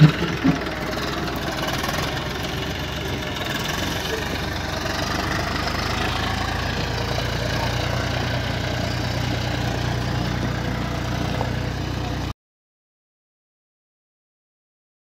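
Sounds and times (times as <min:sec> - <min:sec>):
tractor diesel engine idling: 0:00.0 - 0:12.3.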